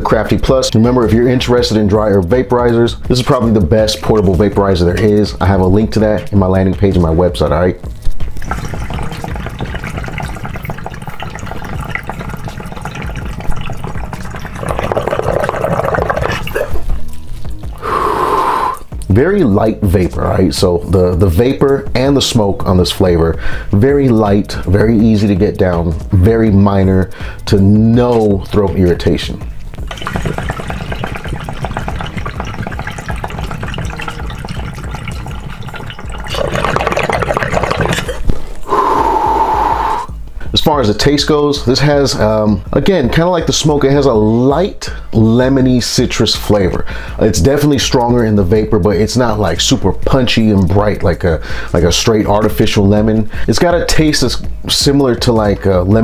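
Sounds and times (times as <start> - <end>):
water bubbling in glass pipe: 7.9 - 19.1, 29.3 - 40.2.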